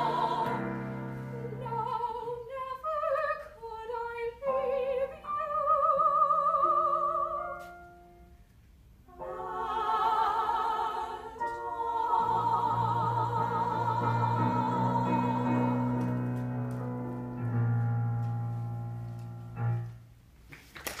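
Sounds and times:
low piano chords: 0.0s - 2.1s, 9.1s - 20.2s
women singing in harmony: 0.0s - 7.6s, 9.1s - 16.4s.

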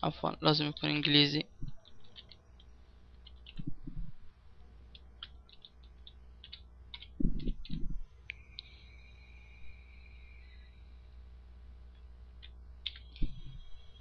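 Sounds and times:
faint high whine: 0.0s - 14.0s
dull low thumps: 3.6s - 4.2s, 7.2s - 8.1s.

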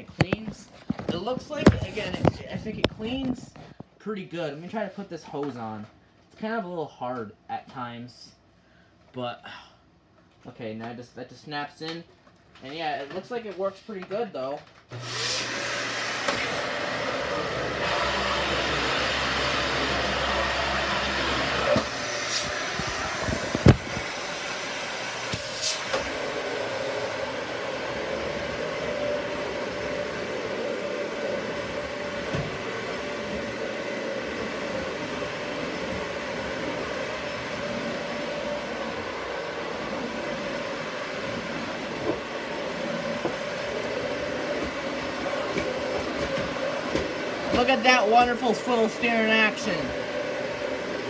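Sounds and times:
vacuum cleaner running: 0.0s - 3.7s, 14.9s - 51.0s.

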